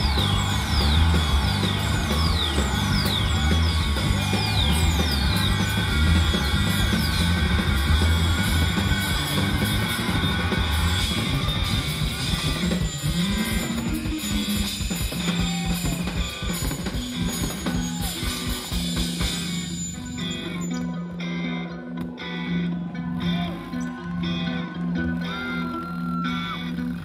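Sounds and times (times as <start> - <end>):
bass guitar low notes: 0.0 - 13.9
drum kit: 0.0 - 20.7
electric guitar: 0.0 - 27.0.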